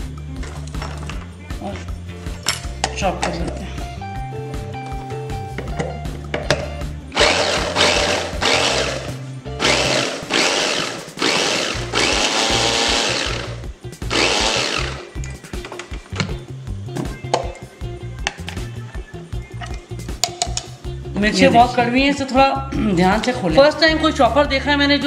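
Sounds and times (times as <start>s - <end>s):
electric chopper whirring: 7.1s - 15.1s.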